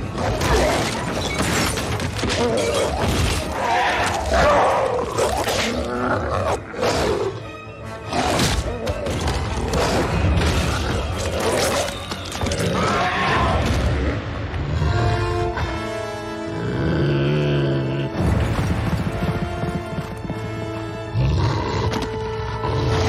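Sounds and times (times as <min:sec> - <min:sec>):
dramatic orchestral music: 0:00.0 - 0:23.0
creatures snarling and roaring: 0:02.3 - 0:07.4.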